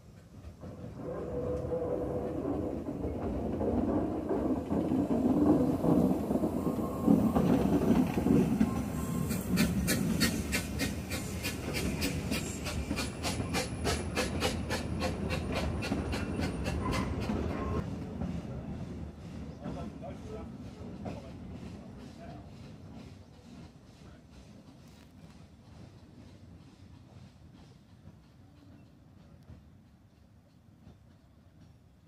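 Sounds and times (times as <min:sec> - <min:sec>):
steam locomotive working hard: 0:00.0 - 0:32.0
wheels clicking over rail joints: 0:00.1 - 0:17.8.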